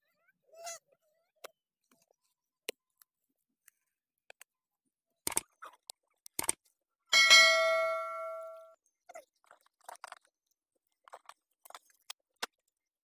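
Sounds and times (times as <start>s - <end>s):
bright bell chime: 7.2s - 8.7s.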